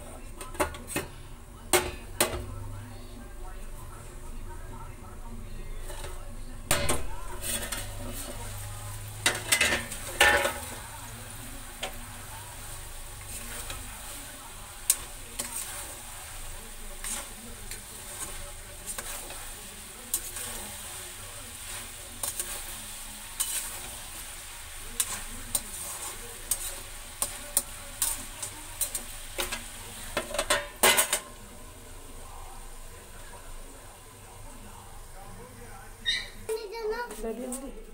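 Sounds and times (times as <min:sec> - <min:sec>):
vegetables sizzling in a pan: 0:00.0 - 0:37.9
metal spoon scraping a pan: 0:05.7 - 0:31.4.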